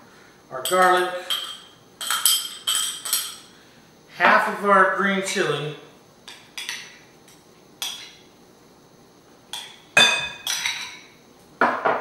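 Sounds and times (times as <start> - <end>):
spoon clinking on glass bowls: 0.6 - 3.5, 7.8 - 8.2, 9.5 - 11.1.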